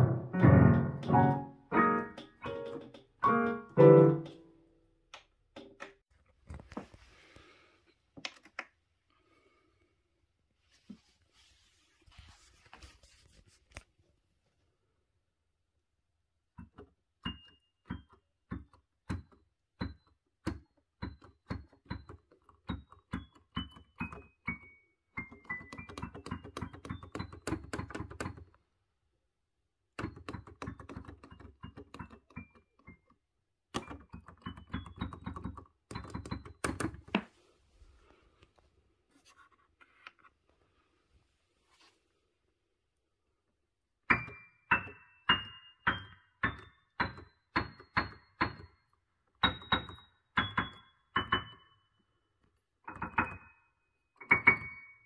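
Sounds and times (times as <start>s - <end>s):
digital piano notes: 0.0s - 4.8s, 44.1s - 48.8s, 49.4s - 51.8s.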